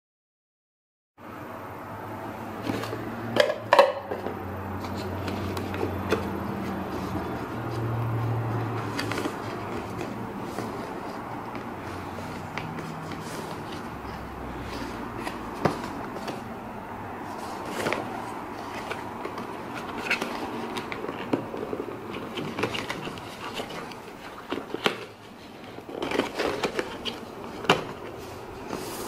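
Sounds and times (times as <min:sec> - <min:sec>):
clicks and rustles: 0:04.1 - 0:16.5, 0:17.2 - 0:29.0
plastic knocking against cardboard: 0:14.6 - 0:16.5.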